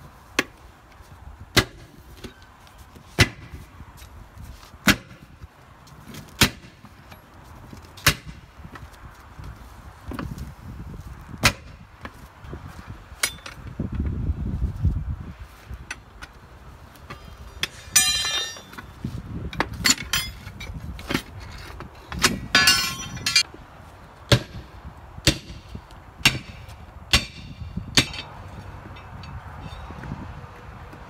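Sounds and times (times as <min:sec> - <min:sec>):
tire irons clanking on metal rims: 0:13.2 - 0:13.8, 0:15.8 - 0:23.5, 0:25.2 - 0:30.2
ringing metal clangs: 0:17.1 - 0:18.8, 0:22.6 - 0:23.4.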